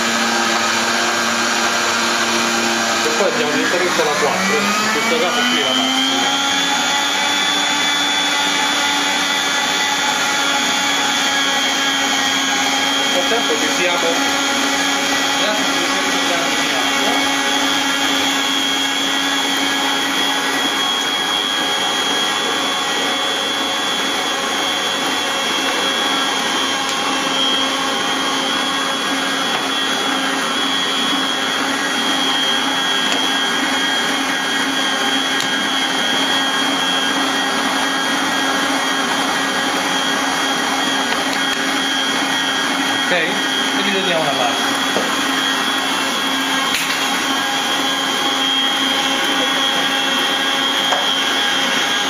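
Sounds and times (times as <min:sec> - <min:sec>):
stand mixer motor humming: 0:00.0 - 0:52.0.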